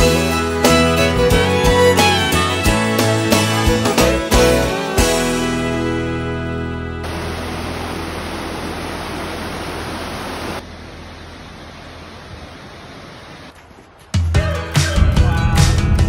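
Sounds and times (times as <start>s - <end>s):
water cascading over boulders: 7.0s - 10.6s
waterfall rushing: 7.0s - 10.6s.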